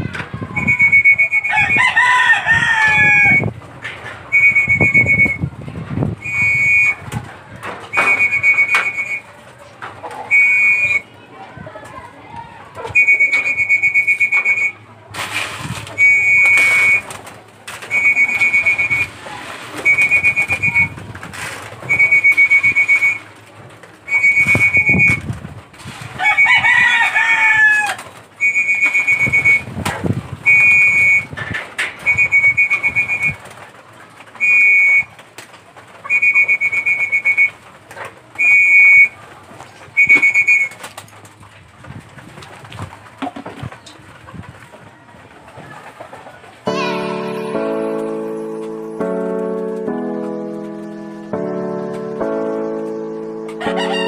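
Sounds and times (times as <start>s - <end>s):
high whistle blasts: 0.6s - 1.8s, 4.4s - 5.4s, 6.2s - 7.0s, 8.0s - 9.2s, 10.3s - 11.0s, 13.0s - 14.8s, 16.0s - 17.0s, 17.9s - 19.1s, 19.8s - 20.9s, 21.9s - 23.2s, 24.1s - 25.2s, 28.4s - 29.7s, 30.5s - 31.3s, 32.0s - 33.4s, 34.4s - 35.1s, 36.1s - 37.5s, 38.4s - 39.2s, 40.0s - 40.7s
rooster crowing: 1.4s - 3.5s, 26.2s - 28.0s, 53.6s - 54.0s.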